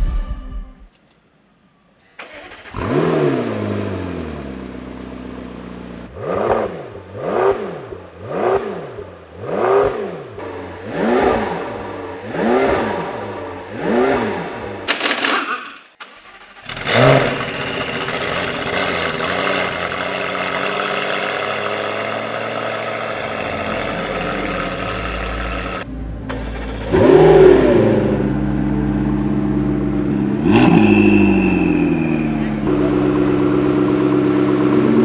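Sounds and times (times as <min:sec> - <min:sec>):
car engine starting and idling: 0:02.0 - 0:35.0
engine rev blips: 0:16.6 - 0:35.0.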